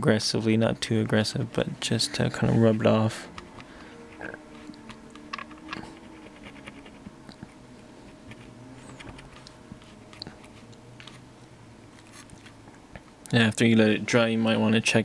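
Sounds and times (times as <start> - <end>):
faint steady hum: 0.0 - 15.0
cotton swab scratching circuit board: 4.1 - 7.5, 8.1 - 11.2.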